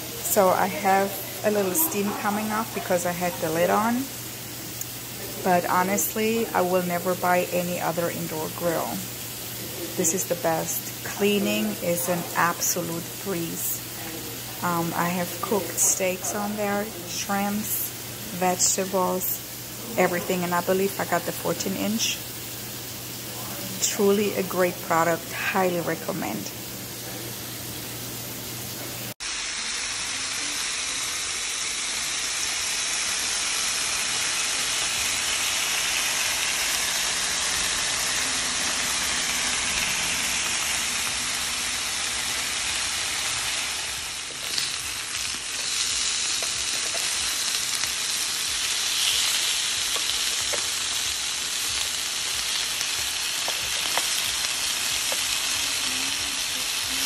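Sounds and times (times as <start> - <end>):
meat sizzling on grill: 0.0 - 57.0
pops and crackles: 53.4 - 54.2.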